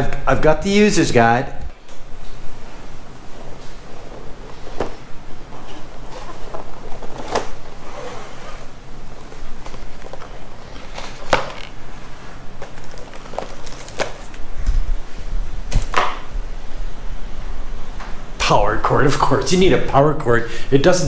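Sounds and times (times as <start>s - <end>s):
cardboard rustling: 3.2s - 14.8s.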